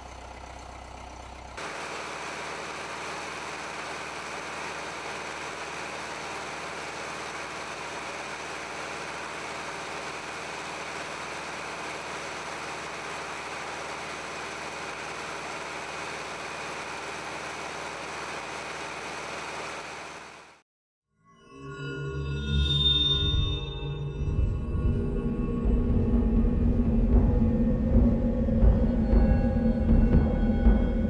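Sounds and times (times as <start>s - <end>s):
machine humming and hissing: 1.6s - 20.6s.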